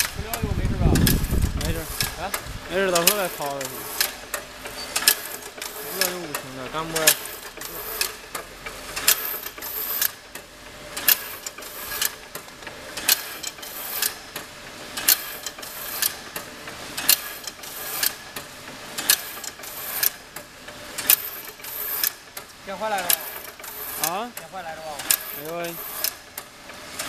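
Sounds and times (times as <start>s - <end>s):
continuous mechanical whir: 0.0s - 27.0s
loom mechanism clacking: 0.0s - 27.0s.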